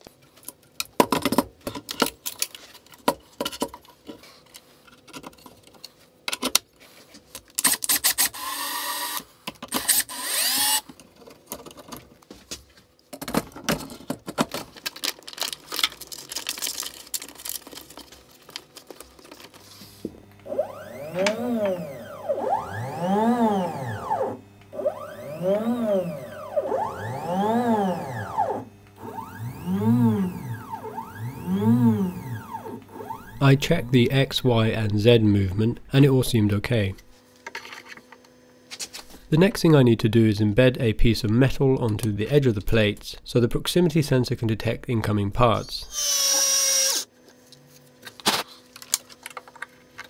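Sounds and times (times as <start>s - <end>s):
cordless drill-driver: 7.6s - 10.9s, 20.4s - 33.5s, 45.9s - 47.1s
stepper motors whining: 8.3s - 10.9s, 20.2s - 35.2s, 45.9s - 47.1s.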